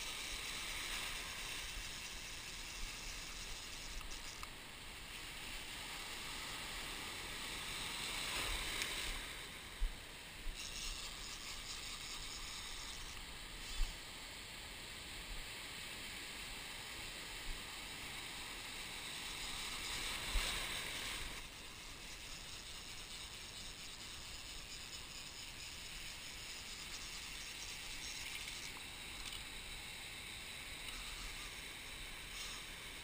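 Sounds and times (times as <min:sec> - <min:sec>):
surf washing through shallow water: 0:00.0 - 0:10.6, 0:12.5 - 0:21.9.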